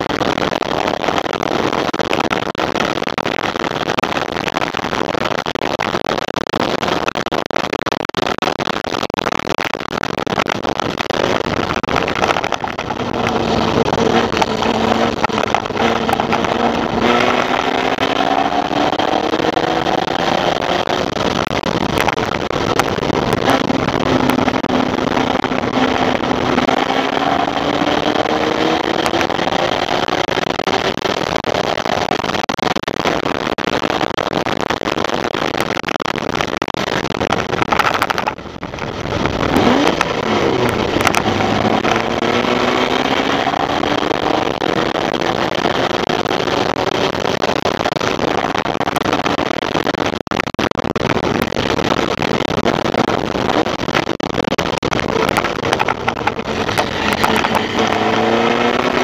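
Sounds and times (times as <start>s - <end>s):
race car engine revving: 11.2s - 30.8s, 38.7s - 47.1s, 54.9s - 59.0s.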